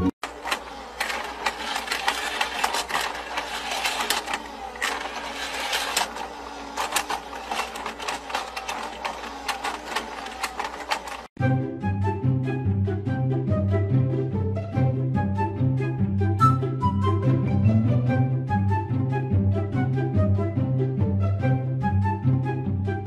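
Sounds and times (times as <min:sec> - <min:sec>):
toy motor whirring and clicking: 0:00.2 - 0:11.3.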